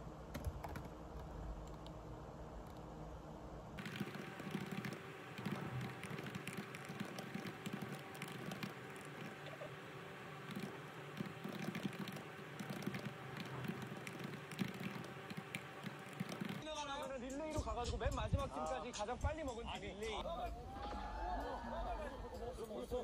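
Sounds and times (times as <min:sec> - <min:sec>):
typing on laptop keyboard: 0:00.3 - 0:02.0, 0:03.8 - 0:16.7.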